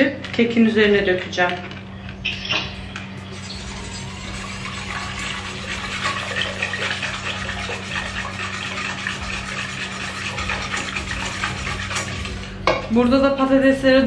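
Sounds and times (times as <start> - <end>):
whisk swishing in metal pot: 3.3 - 12.7.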